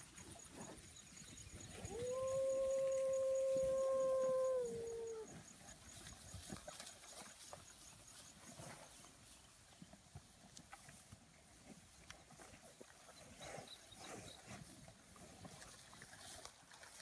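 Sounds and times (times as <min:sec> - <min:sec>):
long held animal call: 0:01.7 - 0:05.4
soft hoof steps: 0:05.4 - 0:17.0.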